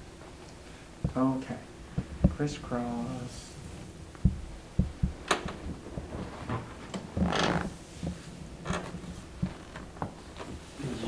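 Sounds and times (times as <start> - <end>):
body and table clicks: 4.1 - 10.6.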